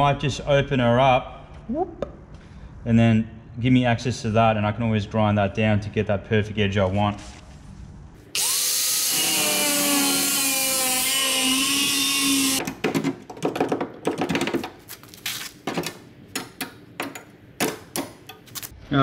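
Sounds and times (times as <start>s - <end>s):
power tool cutting sheet metal: 8.4s - 12.6s.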